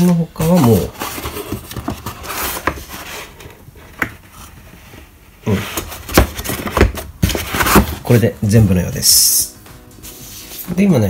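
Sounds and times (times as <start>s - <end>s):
cardboard and paper rustling: 0.0s - 8.3s.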